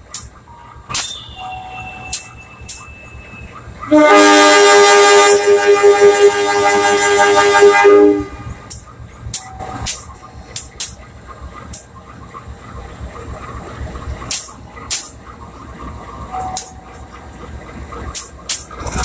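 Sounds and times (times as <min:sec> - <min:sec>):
locomotive air horn blast: 0:03.9 - 0:08.6.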